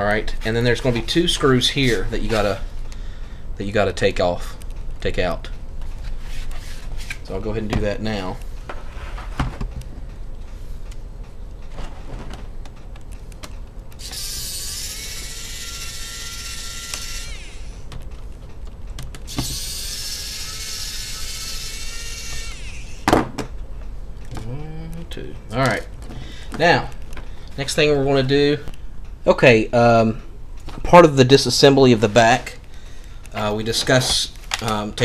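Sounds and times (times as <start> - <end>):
electric screwdriver whirring: 14.0 - 17.8, 19.3 - 23.1.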